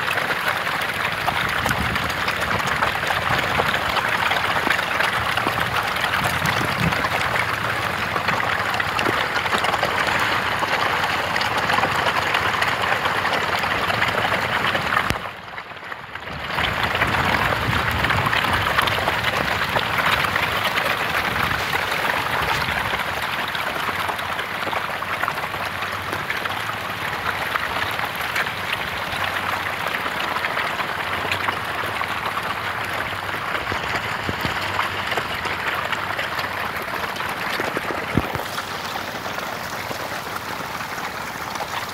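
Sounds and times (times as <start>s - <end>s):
fish splashing at water surface: 16.4s - 41.9s.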